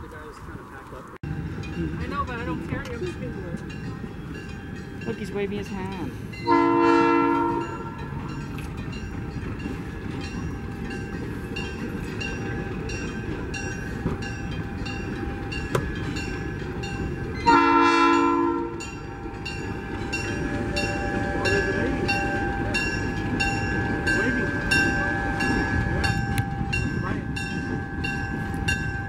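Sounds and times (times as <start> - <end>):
train rumbling past: 0.0 - 29.0
train horn blast: 6.4 - 8.2, 17.4 - 18.9.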